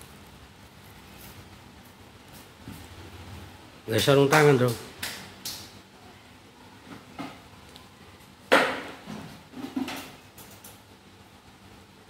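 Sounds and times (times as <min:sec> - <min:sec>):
hard objects knocking and clattering: 0:08.5 - 0:10.2.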